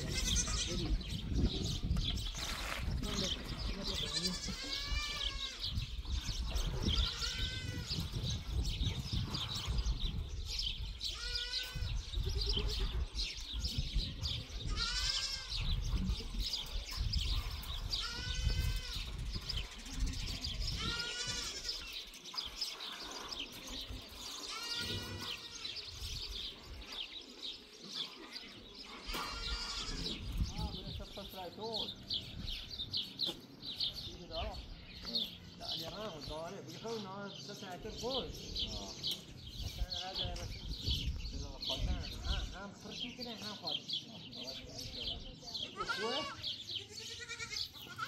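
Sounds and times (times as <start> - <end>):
goats bleating: 0.0 - 1.2, 3.5 - 5.8, 6.8 - 8.2, 11.0 - 13.0, 14.6 - 15.9, 17.8 - 19.7, 20.4 - 22.0, 24.3 - 25.9, 28.9 - 30.3, 45.6 - 48.0.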